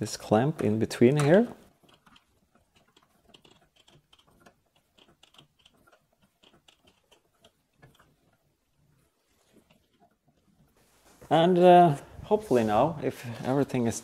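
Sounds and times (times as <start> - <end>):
steel pipe pieces clicking: 1.2 - 8.9.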